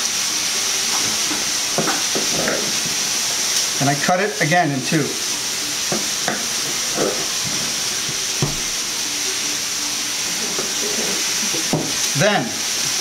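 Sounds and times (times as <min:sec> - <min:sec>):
steady hiss: 0:00.0 - 0:13.0
knife knocking on countertop: 0:01.8 - 0:02.6, 0:08.4 - 0:08.6, 0:11.7 - 0:12.0.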